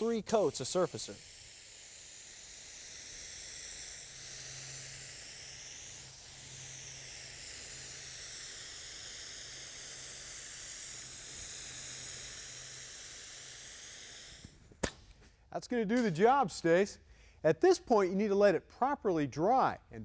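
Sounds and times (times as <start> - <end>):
paint spray gun hissing: 0.0 - 14.8.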